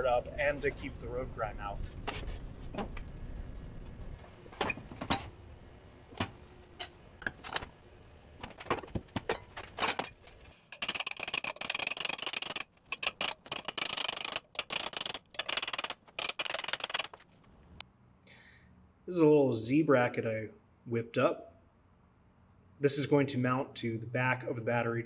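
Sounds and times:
metallic knocks and clicks: 8.4s - 17.2s.

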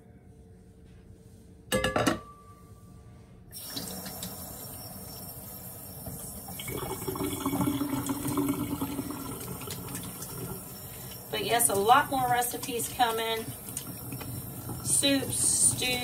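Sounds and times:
tap water running: 3.5s - 16.0s
hands washed under water: 6.2s - 16.0s.

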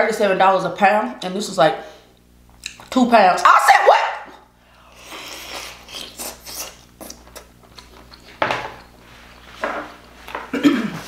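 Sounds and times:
person chewing crab meat: 4.8s - 10.2s.

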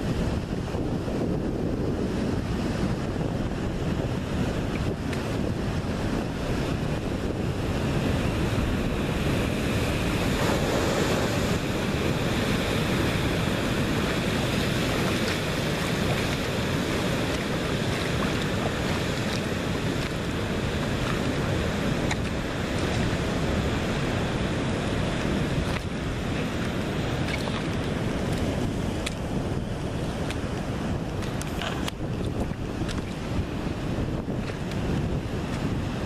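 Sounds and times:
surf breaking over rocks: 0.0s - 36.0s
wind rumbling on microphone: 0.0s - 36.0s.

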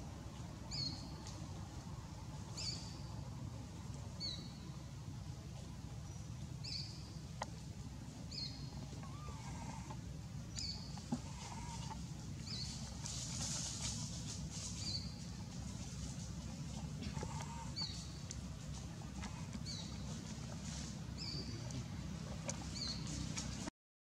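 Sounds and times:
low background rumble: 0.0s - 23.7s
lower bird calls: 8.2s - 14.0s, 14.6s - 23.7s
bird chirping: 8.3s - 12.9s.

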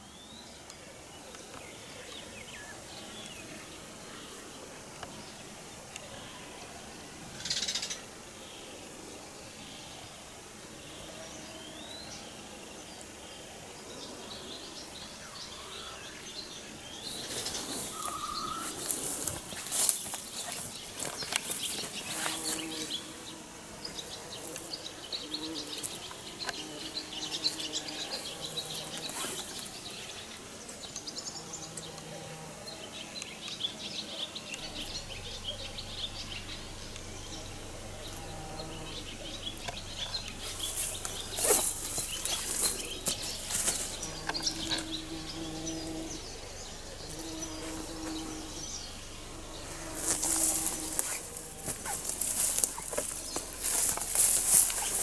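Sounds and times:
small birds chirping: 0.0s - 55.0s
footsteps through long grass: 17.1s - 23.0s, 37.0s - 45.5s, 46.1s - 55.0s.

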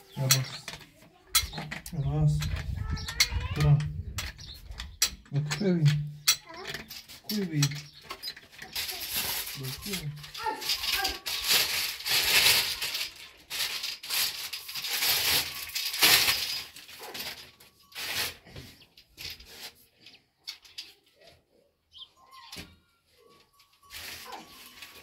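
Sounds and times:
hose and fittings clicking: 0.0s - 10.0s.

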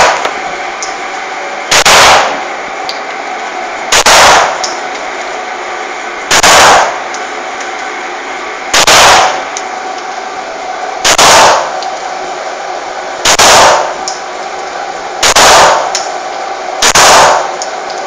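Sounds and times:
pistol shots echoing: 1.7s - 2.4s, 3.9s - 4.6s, 6.3s - 7.0s, 8.8s - 9.4s, 11.0s - 11.8s, 13.3s - 14.0s, 15.2s - 16.0s, 16.8s - 17.6s.

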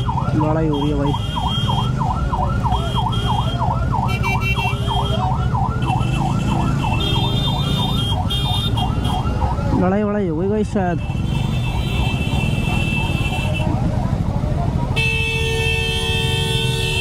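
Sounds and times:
yelp siren: 0.0s - 9.8s.

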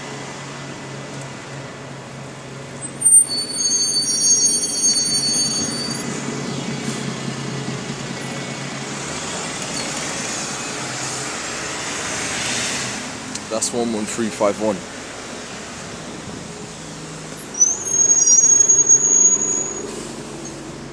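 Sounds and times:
bus engine humming: 0.0s - 20.9s
bus brakes squealing: 2.8s - 7.2s, 9.6s - 10.9s, 17.4s - 20.9s.

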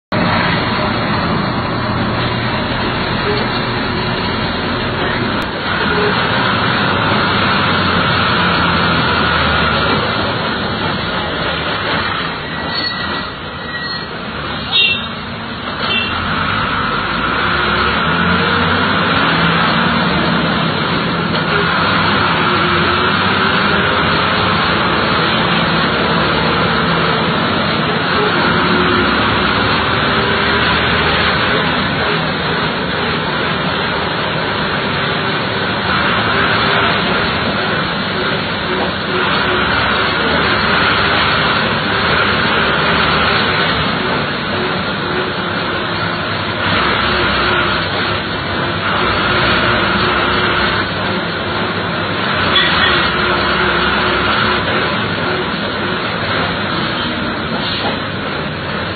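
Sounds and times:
bus engine drone: 0.0s - 58.9s
road noise rush: 0.0s - 58.9s.

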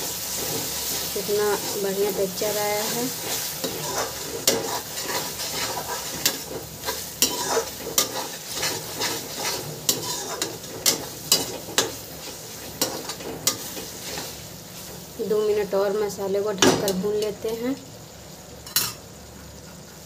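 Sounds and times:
paste sizzling in oil: 0.0s - 20.0s
spatula scraping metal pan: 0.3s - 14.4s.

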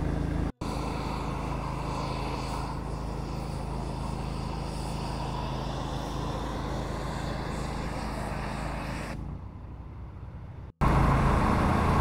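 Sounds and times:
pressure washer motor drone: 0.0s - 9.1s
water spray hissing: 0.6s - 9.2s.

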